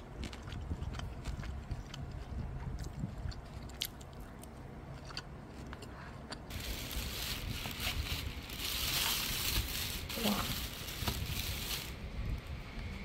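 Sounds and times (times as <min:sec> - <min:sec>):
plastic tub rustling: 0:06.5 - 0:12.0.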